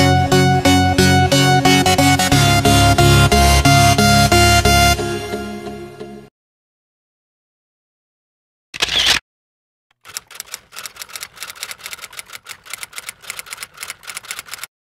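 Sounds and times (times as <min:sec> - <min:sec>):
typewriter key clicks: 0:10.0 - 0:14.7.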